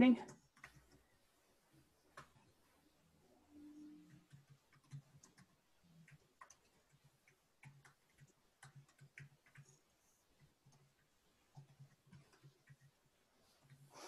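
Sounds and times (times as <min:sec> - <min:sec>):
keyboard keys clicking: 0:00.2 - 0:01.0, 0:03.8 - 0:09.8.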